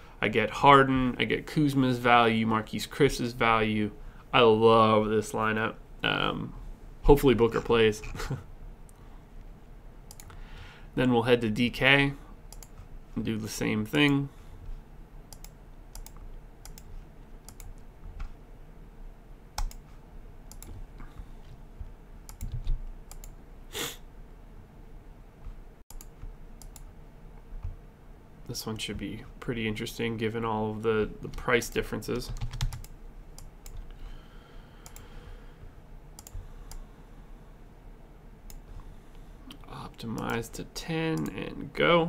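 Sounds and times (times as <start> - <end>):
computer mouse and keyboard clicks: 10.1 - 10.4, 15.3 - 18.4, 19.6 - 20.8, 22.3 - 23.4, 36.2 - 36.8.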